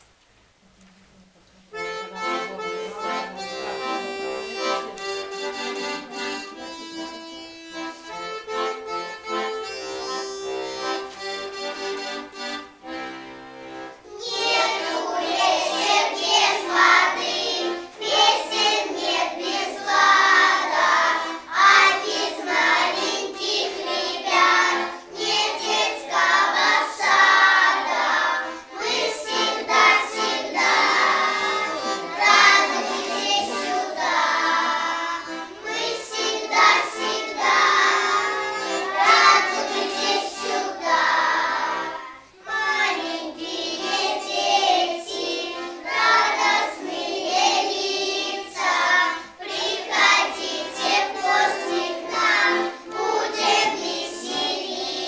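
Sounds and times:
instrumental music with held chords: 0:01.7 - 0:15.1
young children singing: 0:01.7 - 0:55.0.

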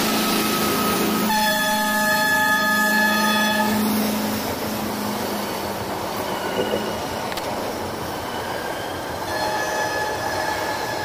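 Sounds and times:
train coaches rolling on rails: 0:00.0 - 0:11.0
train horn blast: 0:01.2 - 0:03.9, 0:09.3 - 0:11.0.

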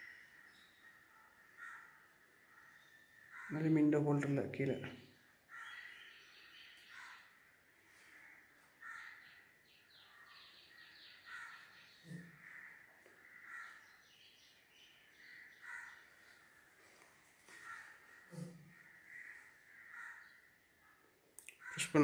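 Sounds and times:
faint bird calls: 0:00.0 - 0:03.7, 0:05.2 - 0:22.0.

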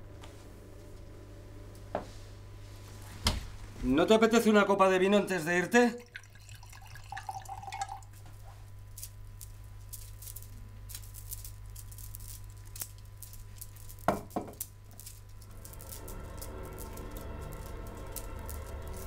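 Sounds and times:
steady low hum: 0:00.0 - 0:19.0
wine pouring into glass: 0:06.0 - 0:08.2
bottle knocking on countertop: 0:14.1 - 0:14.6.

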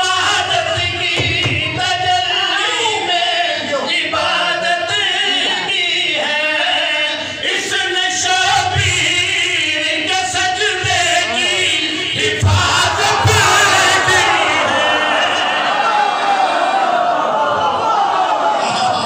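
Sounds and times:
men chanting through pa: 0:10.3 - 0:19.0
audience shouting: 0:12.5 - 0:19.0.

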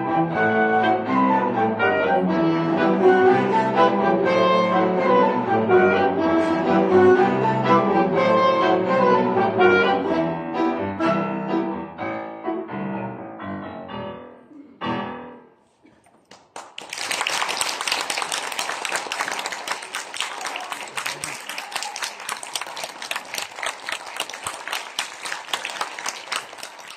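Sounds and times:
cello and wind ensemble playing: 0:00.0 - 0:11.7
audience applause: 0:16.2 - 0:26.9.

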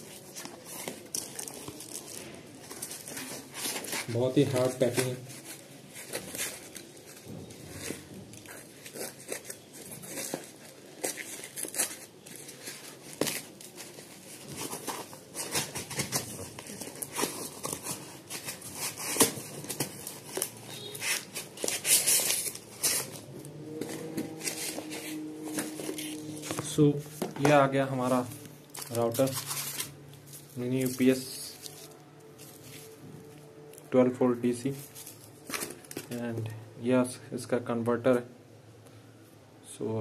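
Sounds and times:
packaging rustling and tearing: 0:00.0 - 0:36.3.

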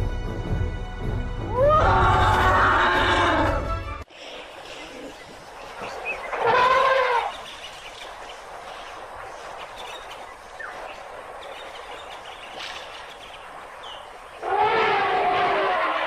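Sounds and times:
steady hiss: 0:04.1 - 0:14.6.

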